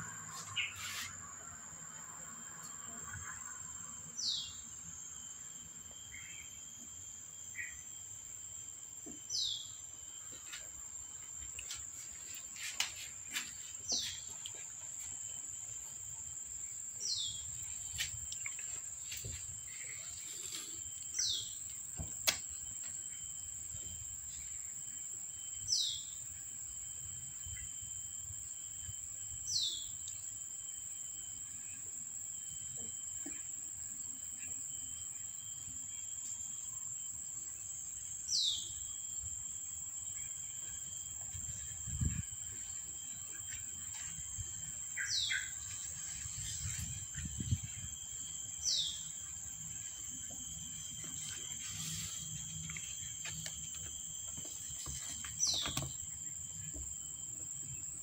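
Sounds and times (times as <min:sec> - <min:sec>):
high-pitched insect drone: 0:15.0 - 0:58.0.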